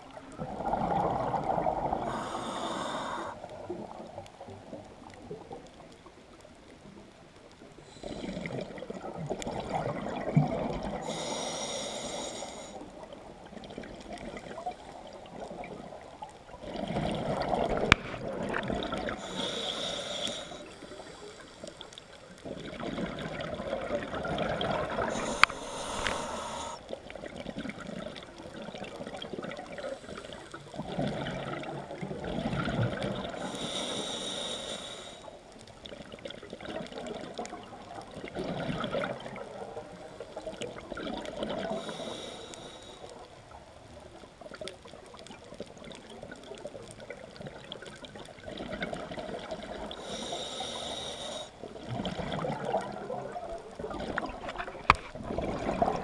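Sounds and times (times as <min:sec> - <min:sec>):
exhaled bubbles rushing: 0:00.0 - 0:02.2, 0:08.3 - 0:11.0, 0:13.3 - 0:19.2, 0:22.4 - 0:26.2, 0:30.8 - 0:33.4, 0:36.0 - 0:41.8, 0:51.7 - 0:56.0
regulator hissing inhales: 0:02.0 - 0:03.4, 0:11.0 - 0:12.9, 0:19.2 - 0:21.9, 0:25.1 - 0:26.9, 0:33.4 - 0:35.4, 0:41.8 - 0:43.1, 0:49.9 - 0:51.6.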